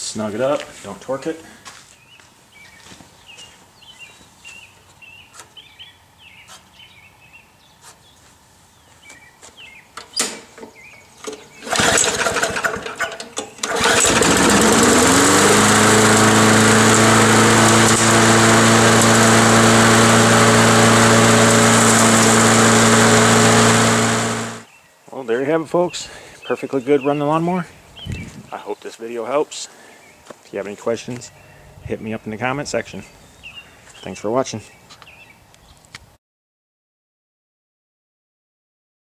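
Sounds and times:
starter cord pulled: 0:11.2 - 0:24.6
lawn mower engine running: 0:11.2 - 0:24.7.

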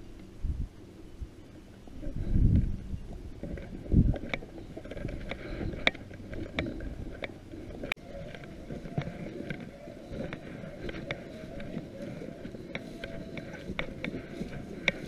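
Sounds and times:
brush and twigs snapping: 0:03.4 - 0:15.0
distant dogs baying: 0:05.3 - 0:15.0.

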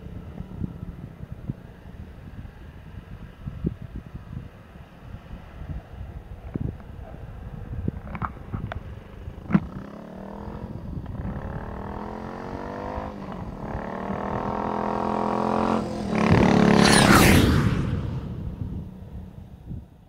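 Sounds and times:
motorcycle engine accelerating past: 0:09.2 - 0:19.2.

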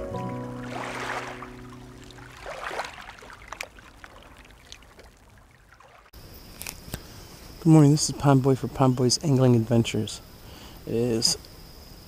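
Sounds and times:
intro music held notes: 0:00.0 - 0:02.5
water pouring and splashing: 0:00.0 - 0:06.2
faint drips and ticks: 0:03.3 - 0:06.0.

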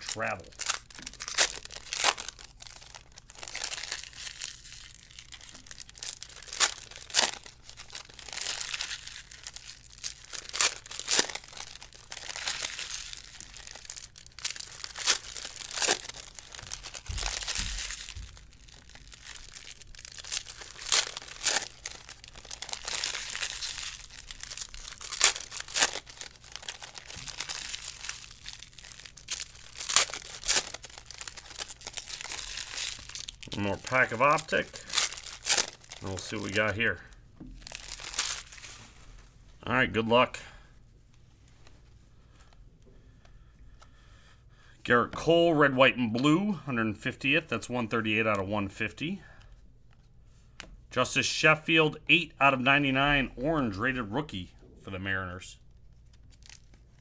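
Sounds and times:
foil wrappers crinkling and tearing: 0:00.0 - 0:39.2, 0:55.8 - 0:57.0.

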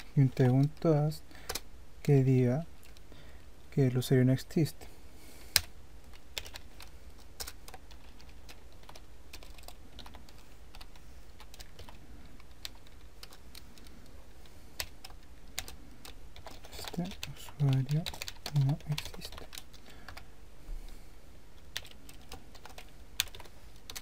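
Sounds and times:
low steady hum: 0:00.0 - 0:24.0
keyboard typing: 0:05.5 - 0:14.2, 0:14.8 - 0:20.2, 0:21.6 - 0:24.0.

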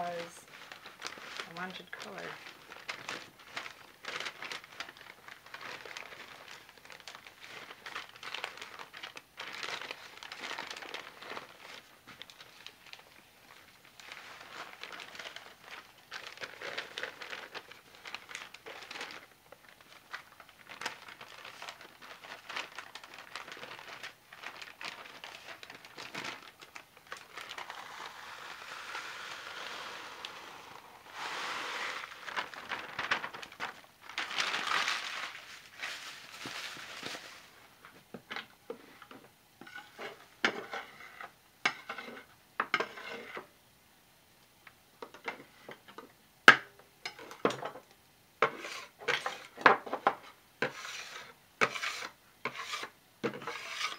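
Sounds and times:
bag crinkling: 0:00.0 - 0:37.9.

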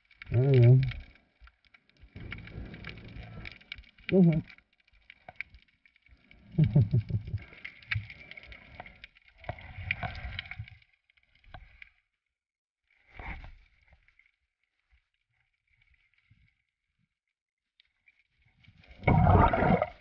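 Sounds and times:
faint crackle: 0:00.0 - 0:20.0
water rushing around camera: 0:01.8 - 0:10.8, 0:18.8 - 0:20.0.

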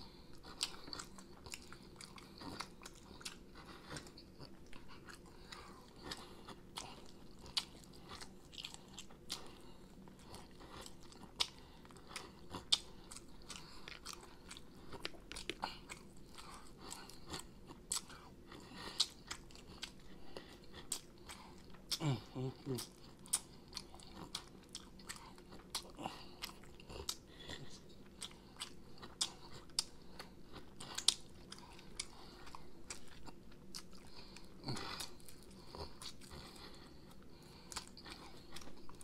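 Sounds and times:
person chewing chicken wings: 0:00.0 - 0:39.0.

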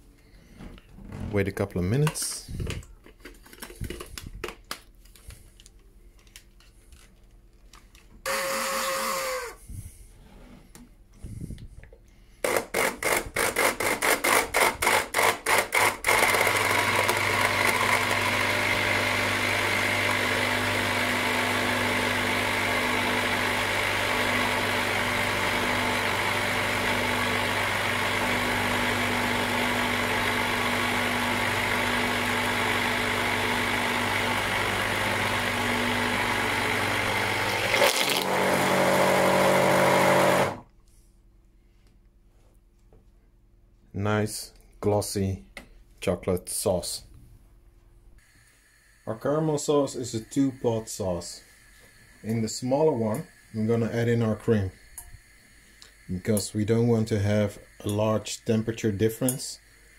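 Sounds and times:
stick blender running: 0:08.2 - 0:09.6, 0:12.4 - 0:40.7, 0:50.0 - 0:59.9.

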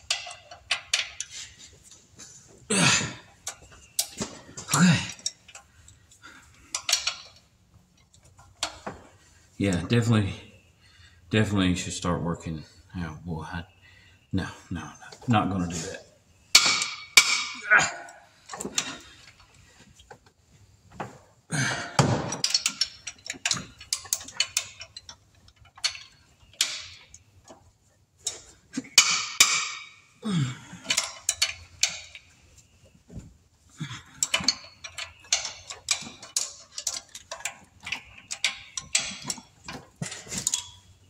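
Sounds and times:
tools knocking against metal: 0:16.6 - 0:17.6, 0:28.3 - 0:30.0, 0:30.8 - 0:32.3, 0:34.2 - 0:40.8
hand ratchet clicking: 0:30.9 - 0:32.2.

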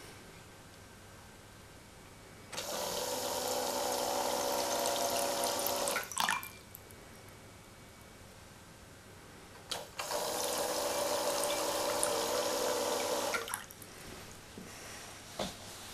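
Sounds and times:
small electric pump whining: 0:02.6 - 0:06.0, 0:09.7 - 0:13.5
water dripping: 0:04.7 - 0:06.9, 0:13.0 - 0:13.8
water splashing into a glass: 0:04.8 - 0:06.6, 0:13.3 - 0:13.8.

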